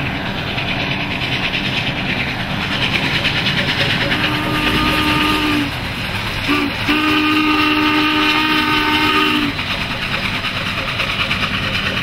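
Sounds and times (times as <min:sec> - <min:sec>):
rumble of moving train: 0:00.0 - 0:12.0
steam whistle blowing: 0:04.0 - 0:09.6.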